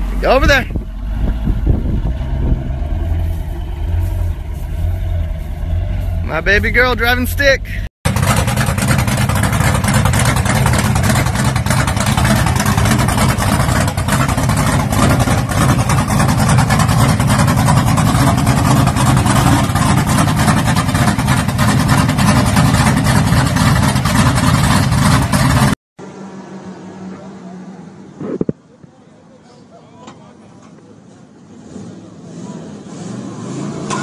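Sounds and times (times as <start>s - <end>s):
truck engine running: 0.0s - 25.8s
exhaust pulsing: 0.0s - 26.2s.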